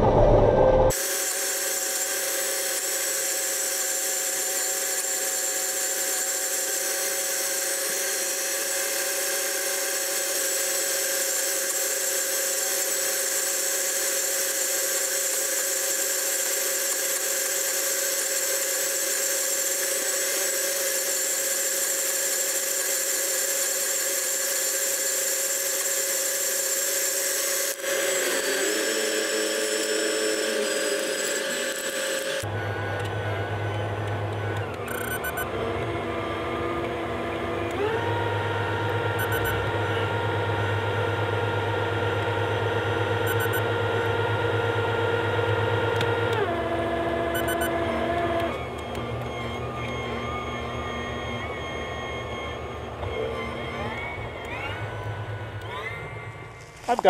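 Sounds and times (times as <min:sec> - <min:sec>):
combine harvester running: 0:00.0 - 0:02.6.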